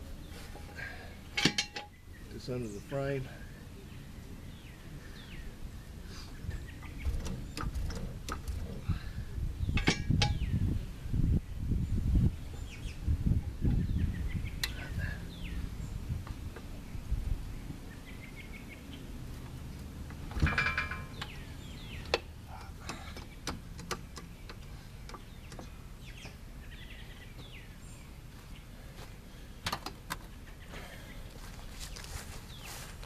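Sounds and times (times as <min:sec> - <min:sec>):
birds chirping: 0:00.0 - 0:33.0
ringing metal clank: 0:00.6 - 0:02.0, 0:09.8 - 0:10.5, 0:20.4 - 0:21.4.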